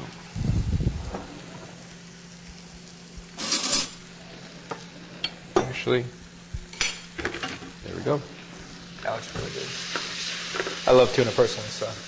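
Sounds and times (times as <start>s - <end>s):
metal spatula scraping grill plate: 3.4s - 4.0s.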